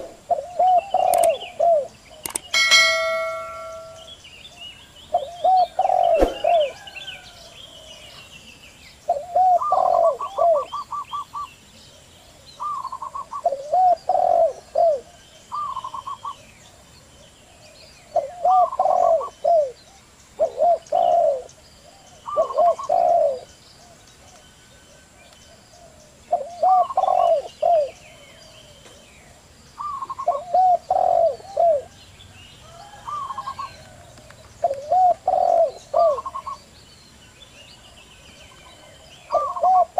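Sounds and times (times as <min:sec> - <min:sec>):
doves cooing: 0:00.0 - 0:04.0, 0:05.2 - 0:07.3, 0:09.1 - 0:11.2, 0:12.6 - 0:16.5, 0:18.1 - 0:19.8, 0:20.4 - 0:23.5, 0:25.8 - 0:28.0, 0:29.8 - 0:32.0, 0:32.8 - 0:36.6, 0:38.6 - 0:39.9
faint small birds chirping: 0:00.0 - 0:39.9.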